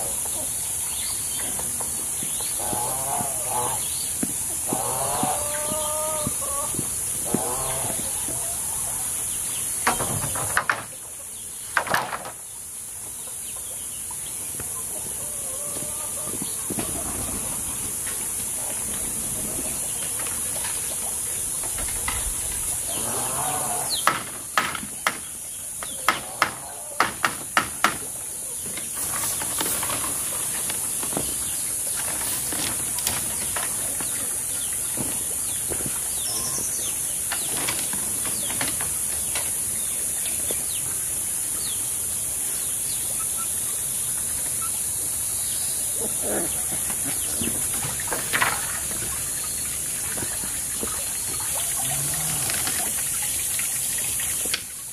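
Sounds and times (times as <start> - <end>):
high-pitched hiss: 0.0 - 54.9
bamboo poles knocking: 9.8 - 11.0, 11.8 - 12.4, 24.0 - 31.4, 47.0 - 48.8.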